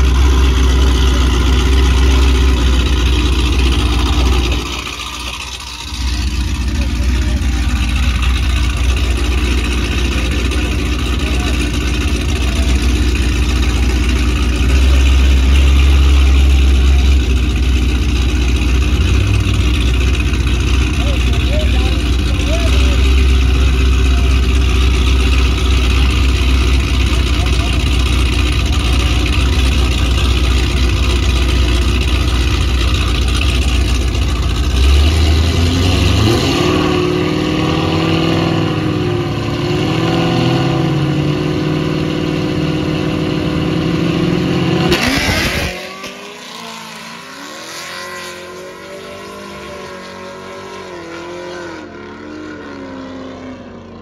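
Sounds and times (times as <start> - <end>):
drag car engine idling: 0.0 - 39.7
drag car launching: 0.0 - 41.0, 43.9 - 53.3
engine revving: 0.0 - 54.0.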